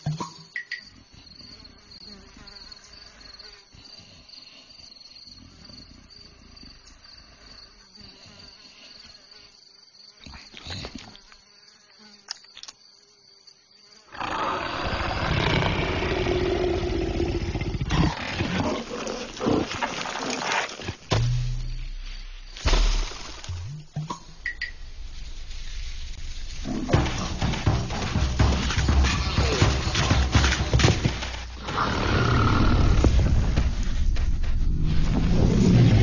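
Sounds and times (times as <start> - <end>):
faint insect-like drone: 0.0 - 36.0
rough animal roar: 14.1 - 20.9, 31.5 - 33.4.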